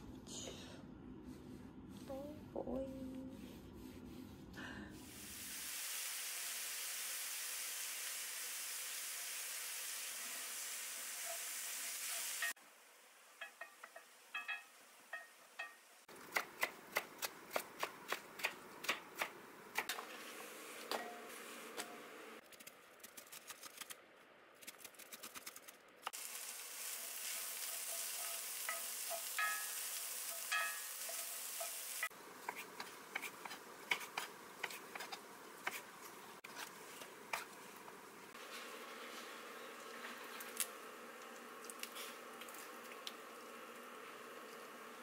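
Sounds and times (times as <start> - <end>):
food sizzling in a pan: 5.0 - 16.3, 26.1 - 45.0.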